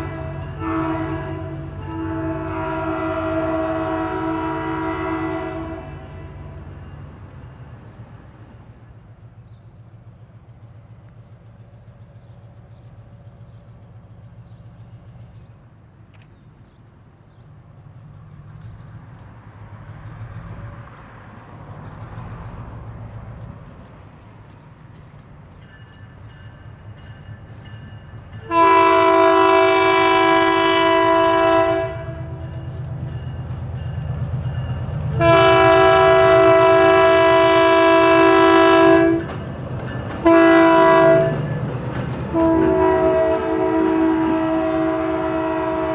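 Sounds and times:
locomotive air horn chord: 0:00.0 - 0:06.8, 0:28.4 - 0:32.8, 0:35.2 - 0:39.3, 0:40.2 - 0:41.4, 0:42.3 - 0:45.9
distant diesel locomotive rumble: 0:00.0 - 0:45.9.

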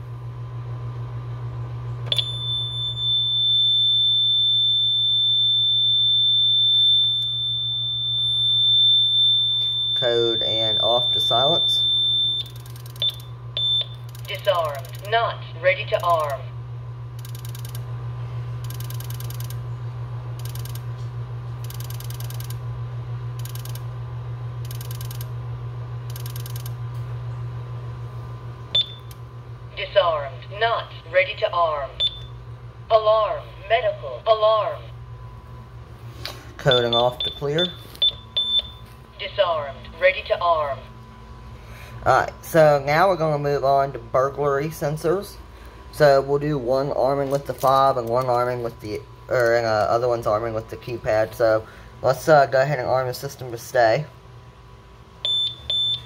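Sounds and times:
steady low hum: 0:00.0 - 0:56.0
alarm high-pitched continuous tone: 0:02.1 - 0:16.5, 0:17.2 - 0:17.8, 0:18.6 - 0:19.6, 0:20.4 - 0:20.8, 0:21.6 - 0:22.6, 0:24.6 - 0:25.3, 0:26.1 - 0:26.7, 0:36.6 - 0:41.0, 0:41.7 - 0:54.0, 0:55.2 - 0:56.0.

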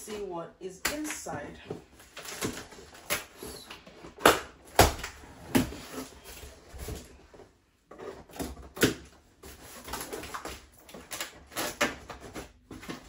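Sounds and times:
cardboard scraping and rustling: 0:05.2 - 0:08.8, 0:09.4 - 0:13.0.

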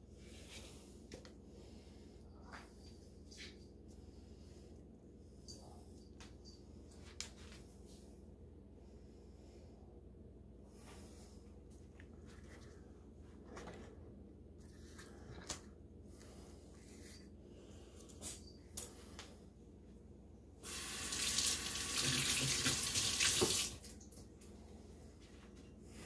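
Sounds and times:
water running from tap: 0:20.6 - 0:23.9.

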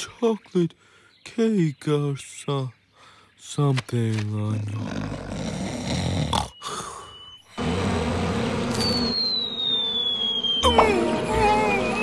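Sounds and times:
cartoon character snoring: 0:04.6 - 0:08.2
wasps buzzing: 0:07.4 - 0:12.0
long falling whistle: 0:08.5 - 0:12.0.

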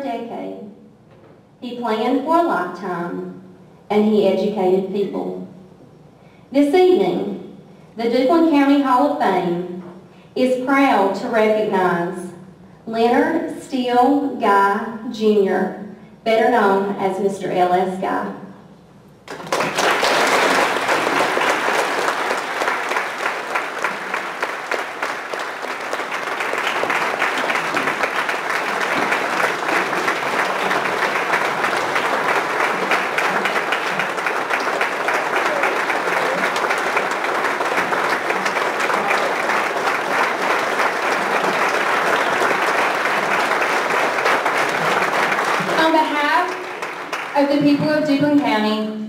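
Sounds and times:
audience applauding: 0:19.2 - 0:47.5.

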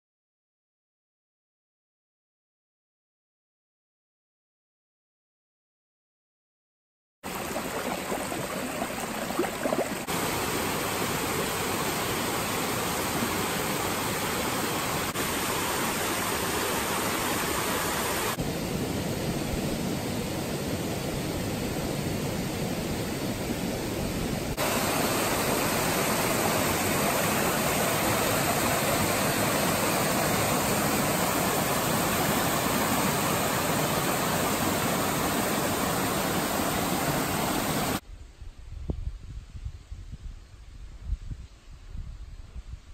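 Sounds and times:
water rushing over rocks: 0:07.3 - 0:18.4, 0:24.1 - 0:38.0.

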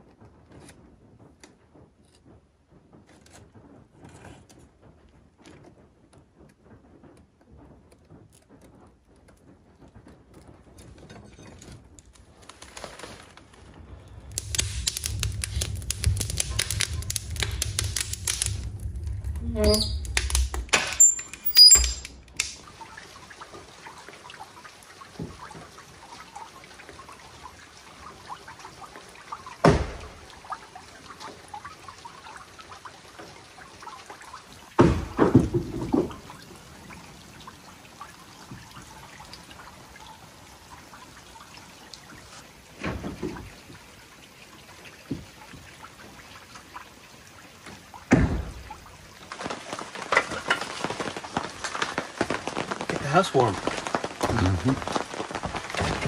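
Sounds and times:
trickling dripping water: 0:06.4 - 0:56.0
dull thuds: 0:48.1 - 0:56.0.

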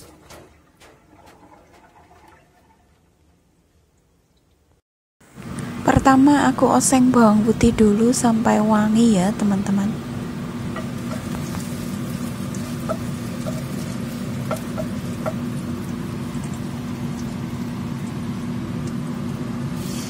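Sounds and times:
garlic sizzling in oil: 0:10.0 - 0:20.0
spatula tapping a pan: 0:10.7 - 0:11.8, 0:12.5 - 0:16.0.

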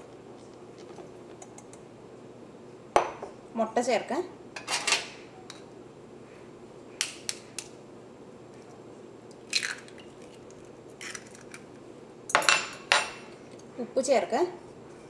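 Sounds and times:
egg cracking against a fork: 0:11.0 - 0:11.6.

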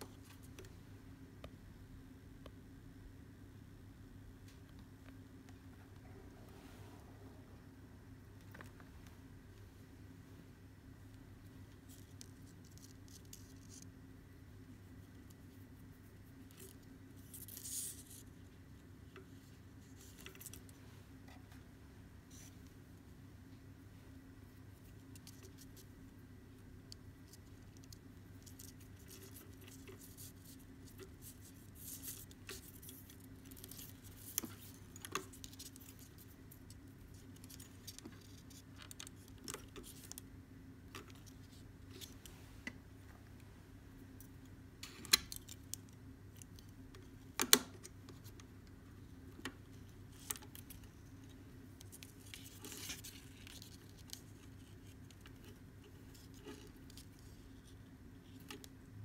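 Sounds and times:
steady low hum: 0:00.0 - 0:59.0
cord rustling: 0:24.1 - 0:43.4, 0:44.0 - 0:58.9.

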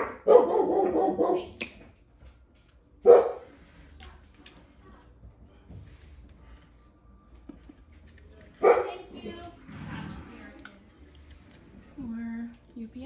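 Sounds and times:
dog barking: 0:00.0 - 0:01.6, 0:03.0 - 0:03.6, 0:08.6 - 0:09.1.

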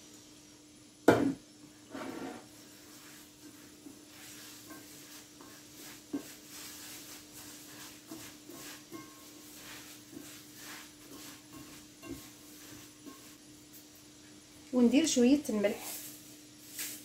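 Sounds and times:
faint steady hum: 0:00.0 - 0:16.8
hands rubbing semolina in bowl: 0:02.5 - 0:13.4.

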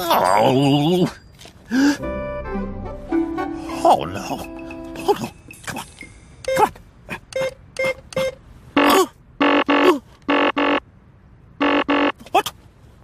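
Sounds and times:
cartoon keypad beeps: 0:06.0 - 0:06.7, 0:07.3 - 0:10.8
harsh error buzzes: 0:08.8 - 0:10.8, 0:11.6 - 0:12.2.

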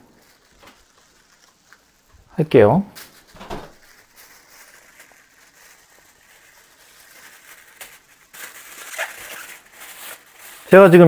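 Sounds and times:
low background hiss: 0:00.0 - 0:11.0.

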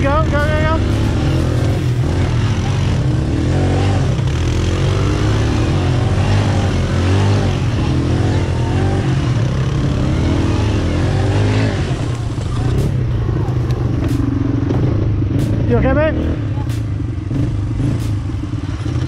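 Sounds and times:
atv engine revving: 0:00.0 - 0:19.0
steady rushing noise: 0:09.3 - 0:18.6.

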